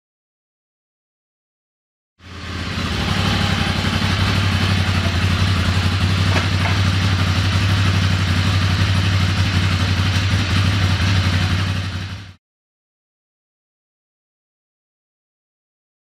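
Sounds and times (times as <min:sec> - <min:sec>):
motorcycle engine idling: 0:02.2 - 0:12.4.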